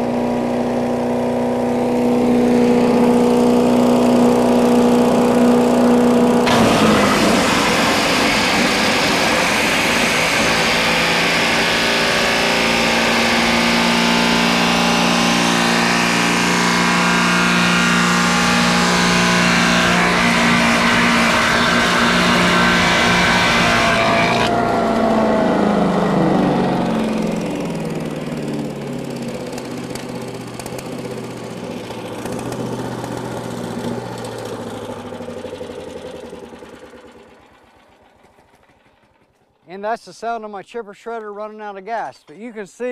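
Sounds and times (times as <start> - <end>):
chipper shredder engine: 0.0 - 39.6
wood grinding into chips: 2.0 - 25.2, 27.0 - 34.6.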